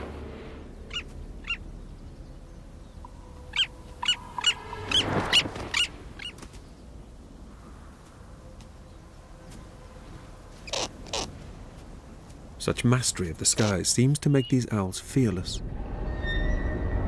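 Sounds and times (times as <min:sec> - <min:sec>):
skua sharp piercing calls: 0:00.9 - 0:01.6, 0:03.4 - 0:06.4, 0:10.6 - 0:11.3
flapping wings: 0:04.8 - 0:06.8.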